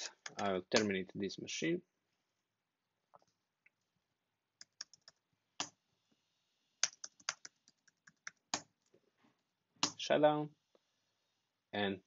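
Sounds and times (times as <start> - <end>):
typing on computer keyboard: 4.6 - 5.7, 6.8 - 8.7.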